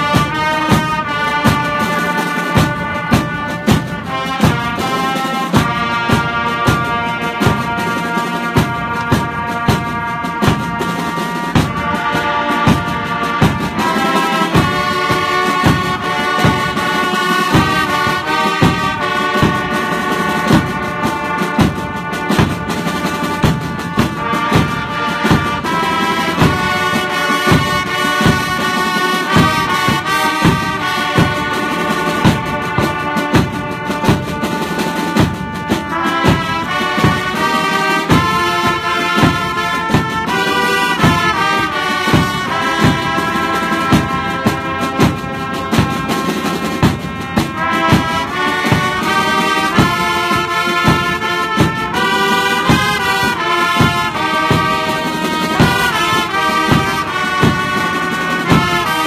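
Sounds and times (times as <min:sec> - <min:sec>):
brass instruments playing melody: 0:00.0 - 0:59.0
steady drum beat: 0:00.0 - 0:59.0.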